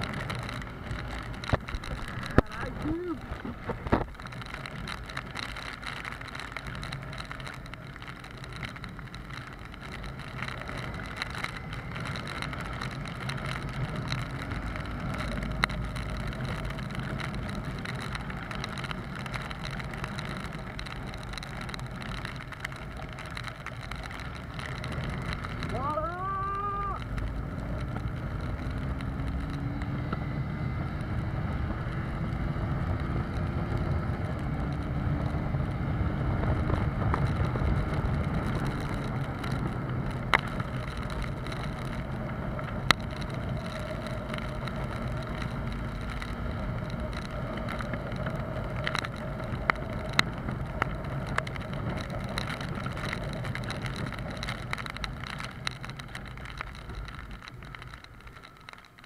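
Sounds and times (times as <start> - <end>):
wind rumbling on microphone: 0.0 - 59.0.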